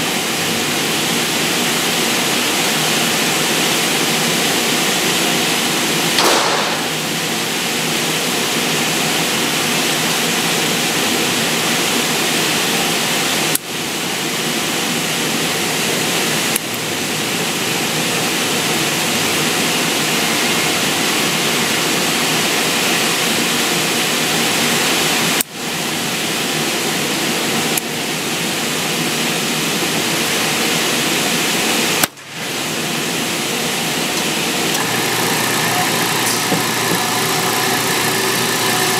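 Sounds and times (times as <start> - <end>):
gunshot cracks: 6.2 - 7.2.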